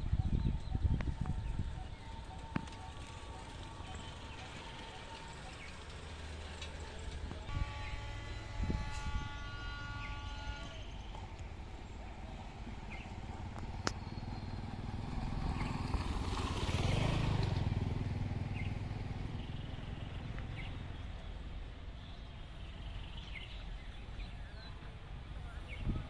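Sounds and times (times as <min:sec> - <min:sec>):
birds chirping: 0:00.0 - 0:16.9, 0:18.4 - 0:26.0
vehicle engine rumble passing: 0:00.0 - 0:26.0.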